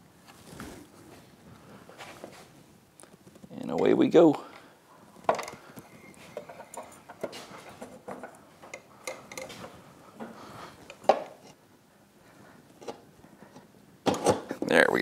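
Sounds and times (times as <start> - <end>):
light metal knocks and scrapes: 5.2 - 11.6.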